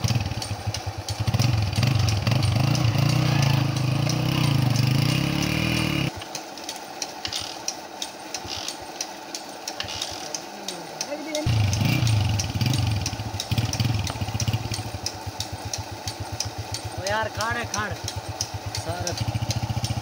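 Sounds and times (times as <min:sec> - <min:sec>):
motorcycle engine revving: 0:00.0 - 0:06.3, 0:09.7 - 0:20.0
faint ticks: 0:06.1 - 0:20.0.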